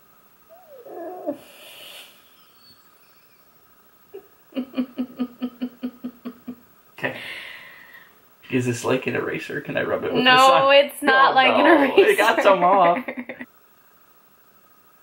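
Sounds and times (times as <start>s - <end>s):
breathy exhale: 1.3s - 2.3s, 7.0s - 8.2s
person laughing: 4.5s - 7.4s, 11.6s - 13.4s.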